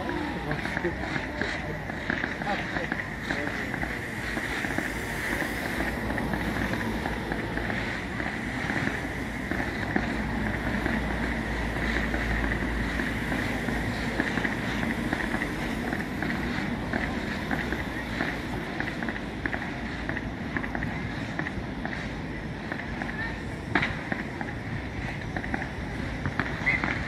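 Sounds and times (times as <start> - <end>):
distant fireworks rumble: 0.0 - 27.0.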